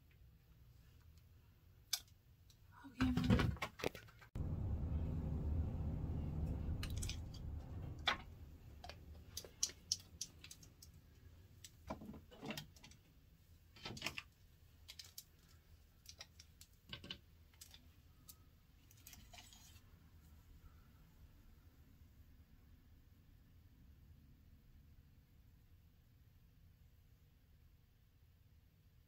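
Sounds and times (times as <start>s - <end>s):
low rumble: 4.4s - 9.8s.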